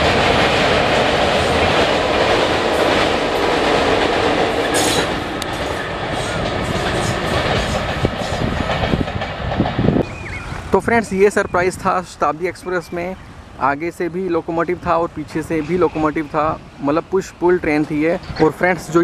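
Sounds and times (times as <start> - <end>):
train wheels rumbling on rails: 0.0 - 19.0.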